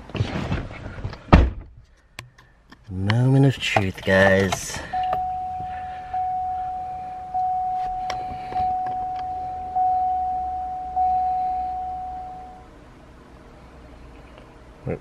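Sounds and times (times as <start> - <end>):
car warning chime ding: 4.6 - 12.7.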